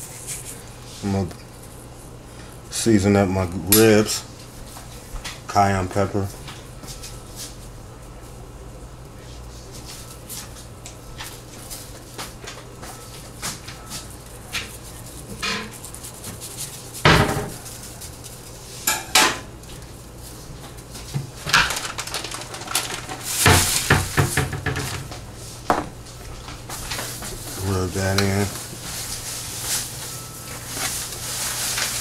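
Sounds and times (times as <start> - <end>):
spice container rattling: 21.5 - 23.9.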